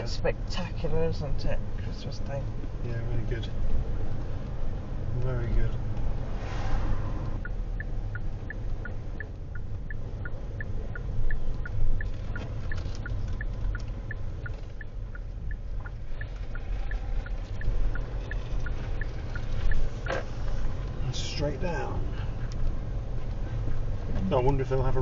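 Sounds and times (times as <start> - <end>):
car cabin rumble: 0.0 - 25.0
turn indicator ticking: 7.3 - 21.8, 22.4 - 24.9.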